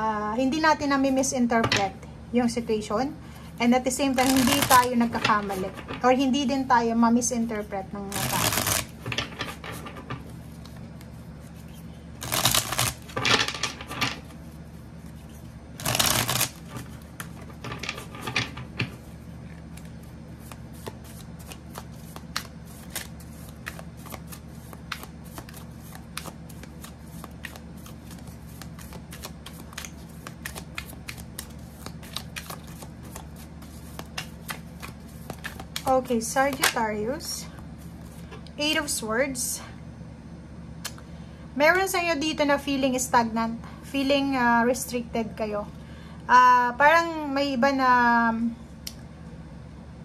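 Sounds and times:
steady low hum: 0.0 - 50.0
cards being shuffled: 4.1 - 6.0, 8.1 - 37.2, 37.8 - 38.4.

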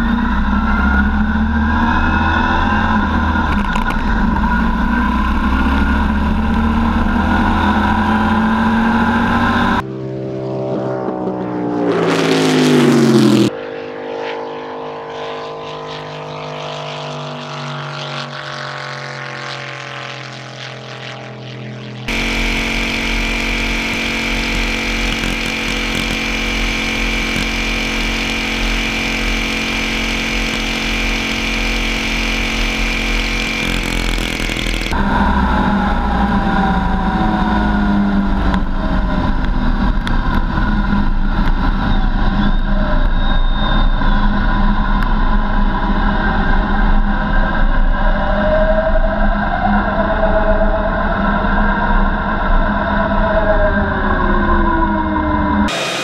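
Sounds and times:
racing lawn mower engine: 0.0 - 43.1, 55.7 - 56.0.

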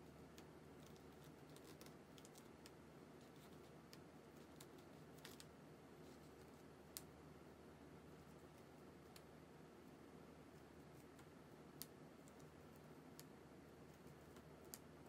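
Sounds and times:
awl clicking through paper: 0.3 - 5.5.

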